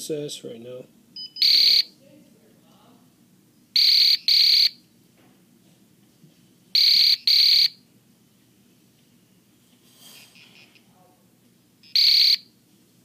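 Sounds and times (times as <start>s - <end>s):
high-pitched detector beeps: 1.2s - 1.9s, 3.8s - 4.8s, 6.8s - 7.8s, 11.8s - 12.5s.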